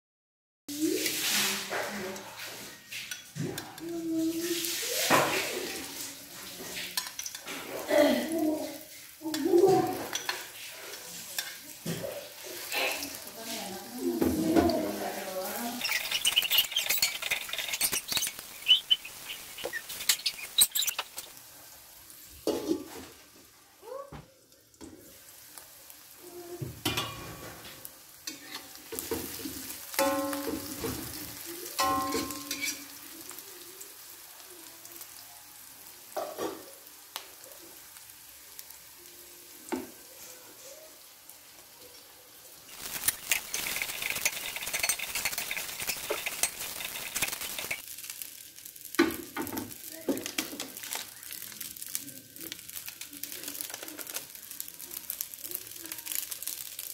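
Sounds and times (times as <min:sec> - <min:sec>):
onions sizzling in hot oil: 0:00.7 - 0:56.9
metal spatula scraping a wok: 0:12.4 - 0:21.4, 0:28.2 - 0:33.0, 0:42.7 - 0:47.8.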